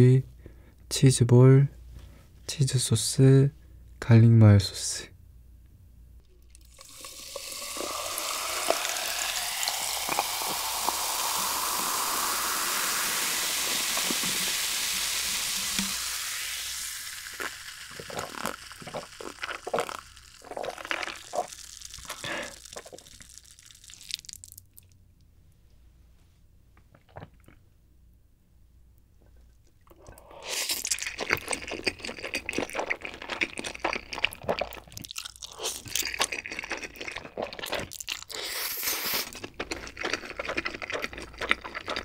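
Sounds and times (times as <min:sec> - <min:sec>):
carbonation crackling and popping: 0:06.2 - 0:24.7
cola fizzing pour into jar: 0:06.4 - 0:24.5.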